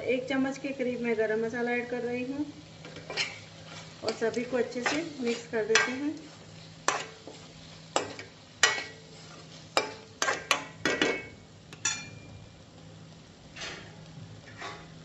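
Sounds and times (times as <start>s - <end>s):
low steady hum: 0.0s - 15.0s
utensil scraping in pan: 2.8s - 11.1s, 13.4s - 15.0s.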